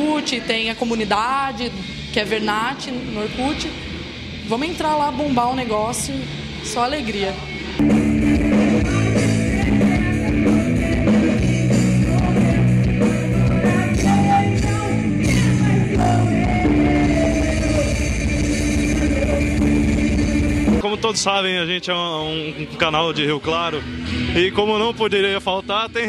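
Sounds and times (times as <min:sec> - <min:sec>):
rock band playing heavy rock: 0:07.7 - 0:20.9
person singing: 0:08.8 - 0:20.1.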